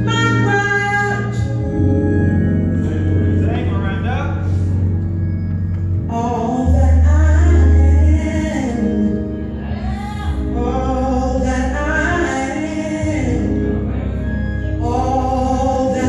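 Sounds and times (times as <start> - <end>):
woman singing gospel: 0.0 - 3.2, 6.1 - 13.8, 14.7 - 16.0
loud low bass note: 0.0 - 16.0
musical accompaniment: 0.0 - 16.0.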